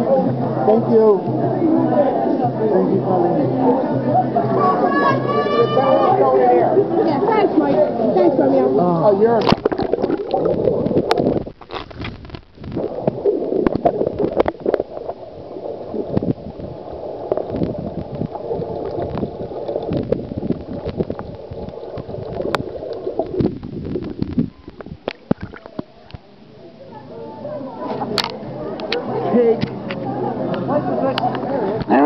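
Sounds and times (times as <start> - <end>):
underwater sloshing and gurgling: 6.7 - 26.8.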